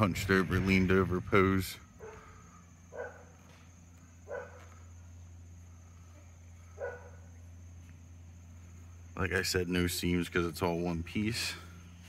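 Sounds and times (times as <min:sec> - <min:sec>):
steady low hum: 0:00.0 - 0:12.0
dog barking faintly: 0:02.9 - 0:03.5, 0:04.2 - 0:04.8, 0:06.7 - 0:07.4.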